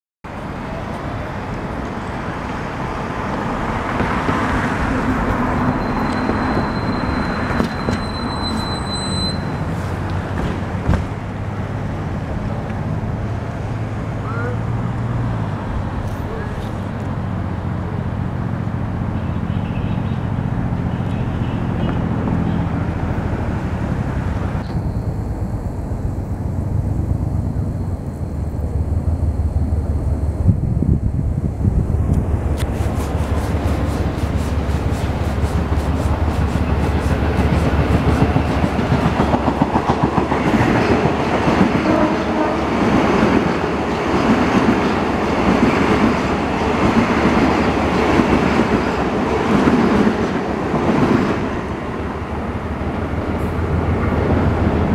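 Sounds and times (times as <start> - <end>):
city traffic noise: 0.2 - 54.9
electric train rumbling: 0.3 - 54.9
thin high whine: 5.5 - 9.8, 24.4 - 38.4.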